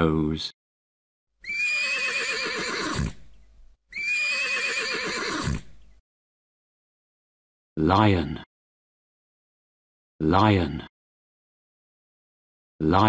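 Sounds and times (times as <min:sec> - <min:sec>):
horse neighing: 0:01.4 - 0:05.8.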